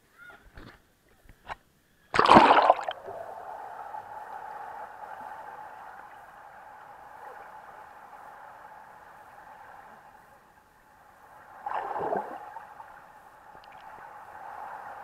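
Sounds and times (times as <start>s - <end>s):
faint hum: 0.0s - 15.0s
water splashing: 2.1s - 3.1s.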